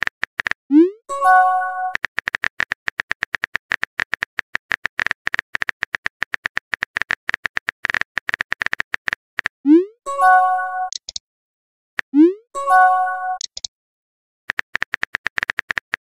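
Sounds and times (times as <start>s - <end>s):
rapid keyboard tap clicks: 1.9s - 9.5s, 14.5s - 16.0s
short message chime: 10.1s - 10.9s, 12.6s - 13.4s.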